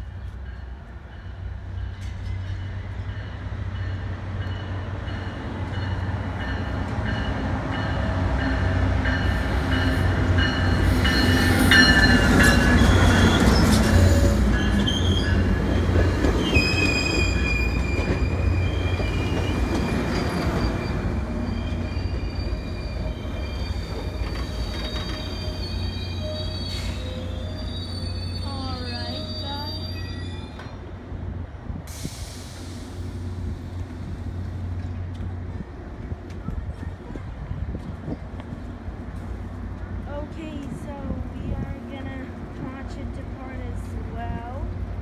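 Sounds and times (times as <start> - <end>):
train rumbling past: 0.0 - 45.0
train wheel squeal: 7.1 - 30.9.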